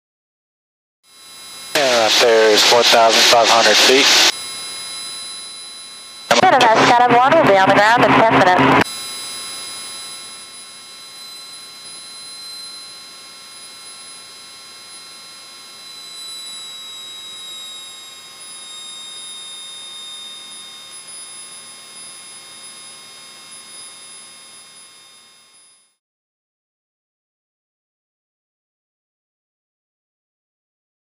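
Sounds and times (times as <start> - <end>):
high whining tones: 1.1 - 26.0
intercom hiss and hum: 1.2 - 24.2.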